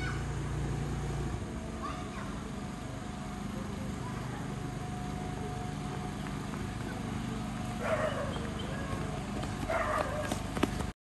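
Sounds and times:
motorboat engine droning: 0:00.0 - 0:10.9
faint voices: 0:01.7 - 0:10.5.

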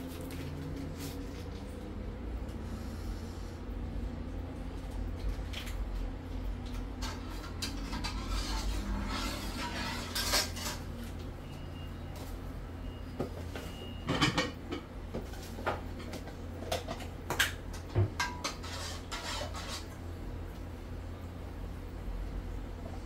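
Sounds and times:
spoon stirring in metal pot: 0:07.0 - 0:10.9, 0:18.2 - 0:20.0.

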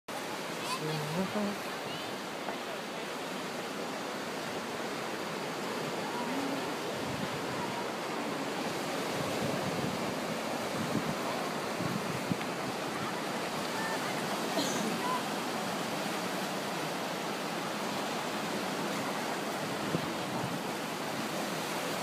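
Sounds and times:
surf washing against rocks: 0:00.1 - 0:22.0
wind buffeting microphone: 0:06.7 - 0:14.2, 0:19.0 - 0:22.0.

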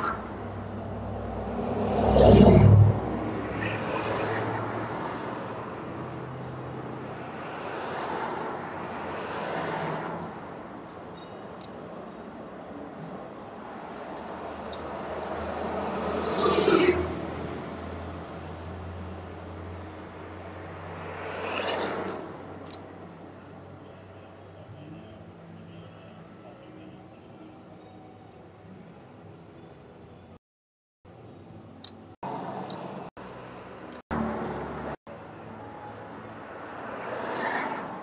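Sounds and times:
vehicle passing by: 0:00.0 - 0:05.7, 0:14.9 - 0:22.5
vehicles passing on street: 0:00.0 - 0:30.4, 0:31.1 - 0:38.0.

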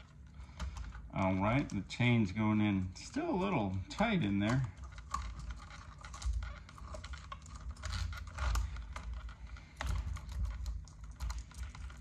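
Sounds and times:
chainsaw chain clicking and rattling: 0:04.0 - 0:12.0.

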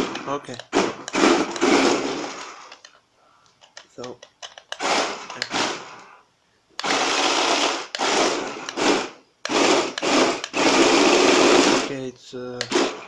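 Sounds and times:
toy car electric motors whirring: 0:06.8 - 0:12.0.

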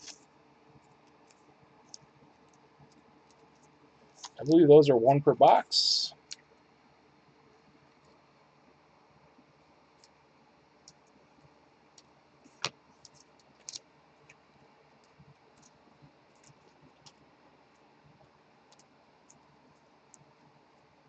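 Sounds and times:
trading cards clicking on desk: 0:12.5 - 0:14.4.

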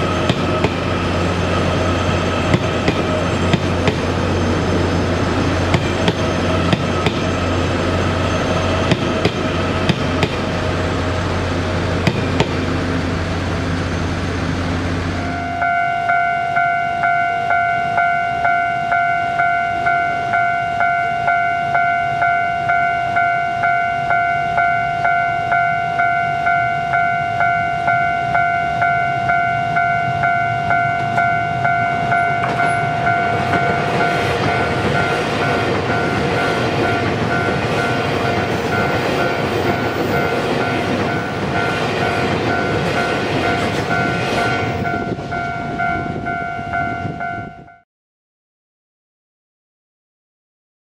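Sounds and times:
electric train rumbling past: 0:00.0 - 0:47.8
level-crossing warning bell: 0:15.2 - 0:47.8.

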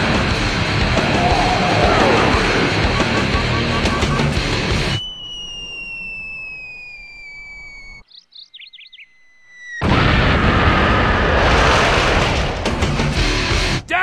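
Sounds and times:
falling whistle: 0:01.2 - 0:08.1, 0:08.9 - 0:09.8
bird chirps: 0:02.9 - 0:09.8
loud explosion: 0:09.8 - 0:13.6.

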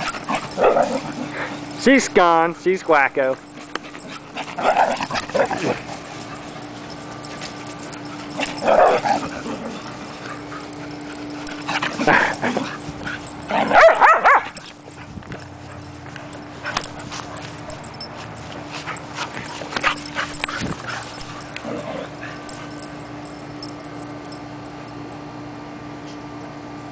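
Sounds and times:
dogs vocalizing in play: 0:00.0 - 0:01.8, 0:03.4 - 0:23.1
dogs playing: 0:00.0 - 0:25.2.

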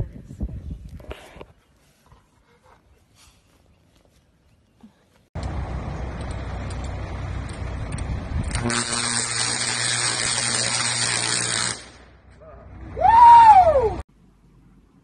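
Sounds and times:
low steady rumble: 0:05.4 - 0:08.7, 0:11.9 - 0:15.0
power line arcing crackle: 0:05.4 - 0:12.4.

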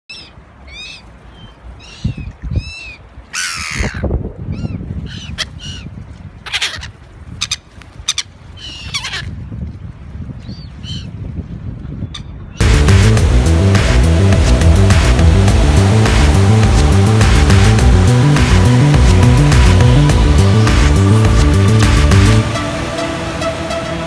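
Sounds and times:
gulls calling: 0:00.1 - 0:09.3, 0:12.1 - 0:24.0
low thumps: 0:12.6 - 0:23.4
rushing noises: 0:12.6 - 0:24.0.

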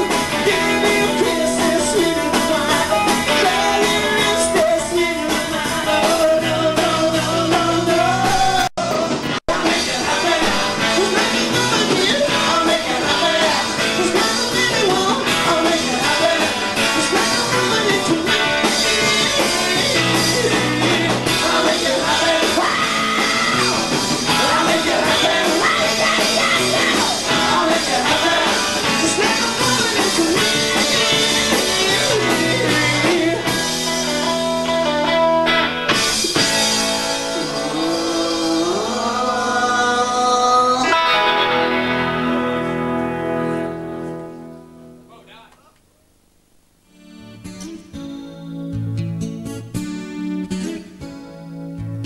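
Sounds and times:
person singing: 0:00.0 - 0:34.9, 0:37.2 - 0:42.6
electric guitar: 0:00.0 - 0:45.6, 0:46.9 - 0:52.0
drums: 0:00.0 - 0:46.0, 0:46.6 - 0:52.0.

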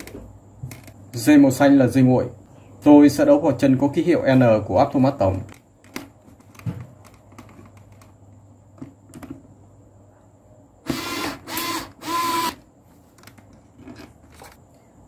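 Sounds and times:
electric screwdriver motor whine: 0:10.9 - 0:12.6.

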